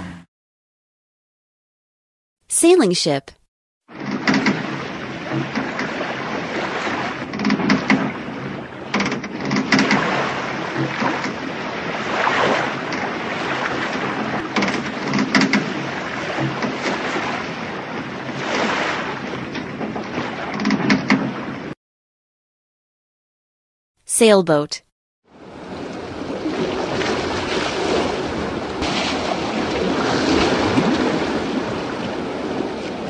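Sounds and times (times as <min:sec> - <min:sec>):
sea waves washing: 0:03.9 - 0:20.6, 0:25.3 - 0:33.0
wind: 0:03.9 - 0:21.8, 0:25.3 - 0:33.0.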